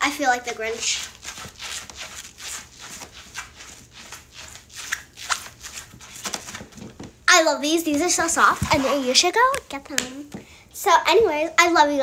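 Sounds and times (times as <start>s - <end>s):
slippers shuffling on wooden floor: 8.0s - 9.2s.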